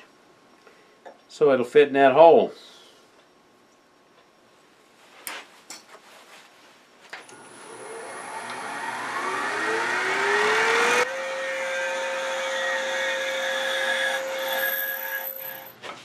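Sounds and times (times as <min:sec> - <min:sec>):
wood lathe motor whining: 0:07.3 - 0:15.7.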